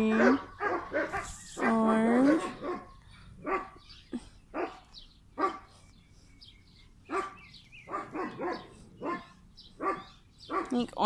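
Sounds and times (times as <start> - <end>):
puppy barking: 0.0 - 3.8, 4.6 - 5.7, 7.1 - 10.8.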